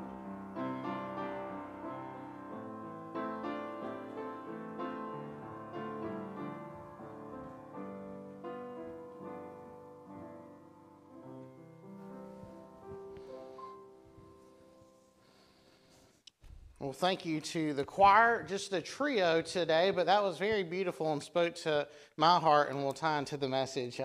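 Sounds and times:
slow gentle piano chords: 0.0s - 16.0s.

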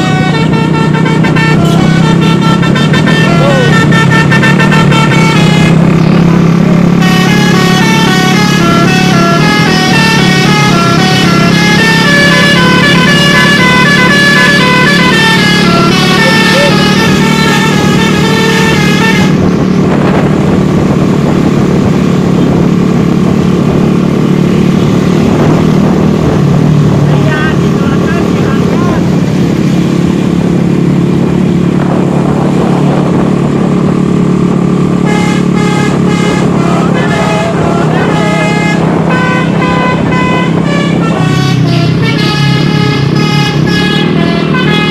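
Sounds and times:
multi-tone air horn tune: 0.0s - 5.9s, 6.9s - 19.5s, 34.9s - 44.9s
bus engine: 0.0s - 44.9s
motorcycle engine: 0.0s - 44.9s.

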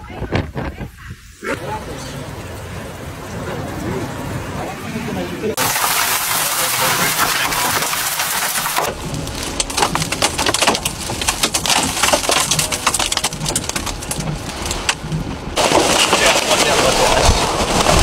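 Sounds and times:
hurricane wind and driving rain: 0.0s - 18.0s
sharp crackles and knocks: 5.6s - 18.0s.

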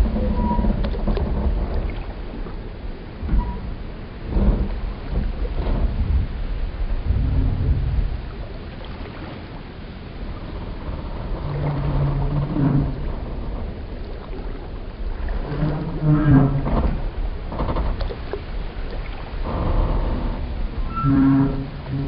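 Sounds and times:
wooden timbers creaking: 0.0s - 2.2s, 3.2s - 6.2s, 10.5s - 14.5s, 15.3s - 18.4s, 19.4s - 22.0s
low rumble: 0.0s - 22.0s.

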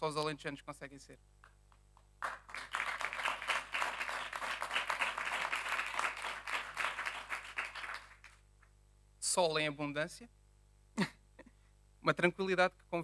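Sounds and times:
audience applauding: 2.2s - 8.4s.

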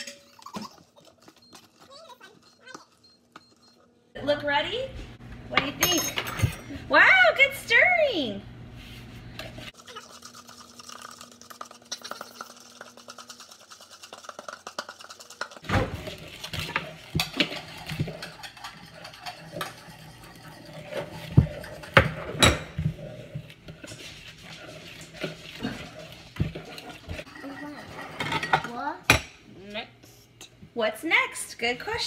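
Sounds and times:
spoon scraping batter: 9.7s - 28.2s.

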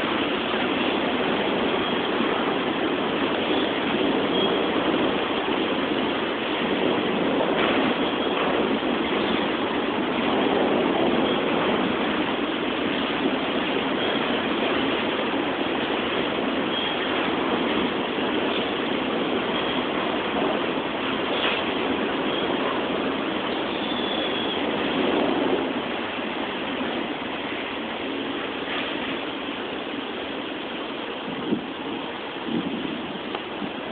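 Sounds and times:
train wheels on rails: 0.0s - 33.9s.

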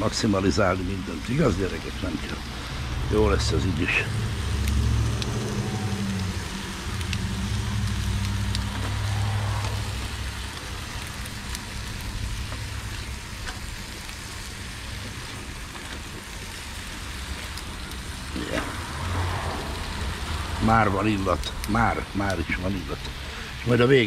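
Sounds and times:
low rumble: 0.0s - 23.2s
food sizzling on grill pan: 0.0s - 24.0s.

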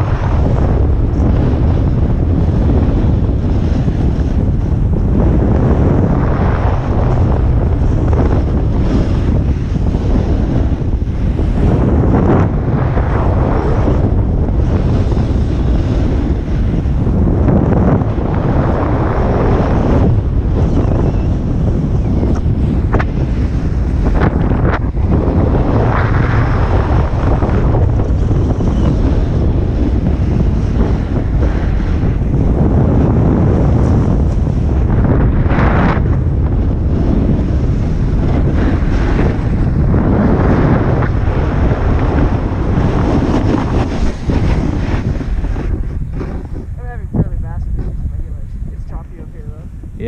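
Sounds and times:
wind buffeting microphone: 0.0s - 50.0s
skis carving snow: 37.1s - 47.0s.

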